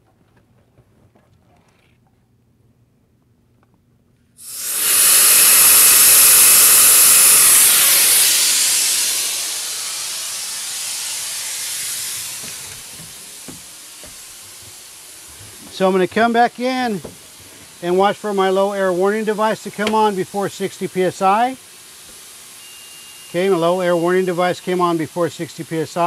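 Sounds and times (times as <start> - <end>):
compressed air hissing from valve: 4.4 - 26.0.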